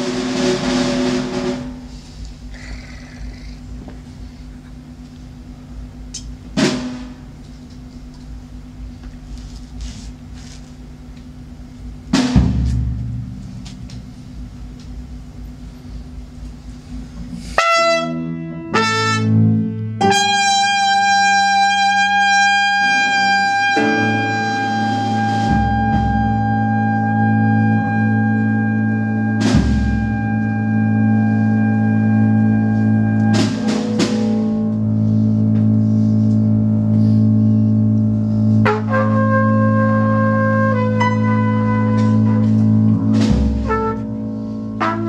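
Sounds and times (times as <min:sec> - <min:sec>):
drum and cymbal strokes: 0:00.0 - 0:07.4, 0:09.7 - 0:17.7, 0:23.0 - 0:38.7, 0:42.1 - 0:45.0
sustained low drone: 0:01.4 - 0:45.0
long held trumpet notes: 0:17.6 - 0:45.0.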